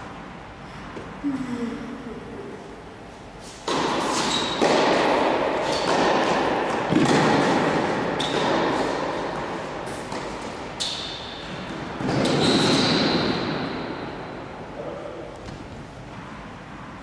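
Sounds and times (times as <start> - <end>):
tennis balls struck and bouncing: 3.6 - 14.5.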